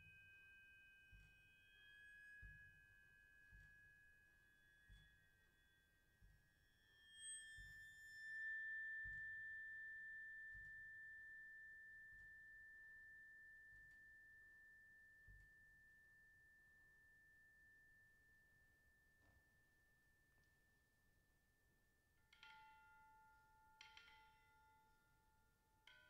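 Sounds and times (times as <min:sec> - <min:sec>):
high metallic percussion tone ringing: 0:01.2 - 0:11.4.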